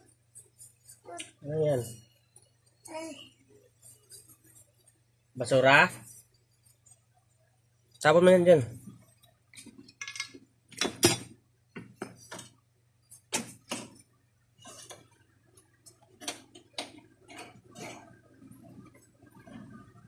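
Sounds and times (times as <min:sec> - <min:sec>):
clicks of metal parts set down: 0:09.6 - 0:11.3.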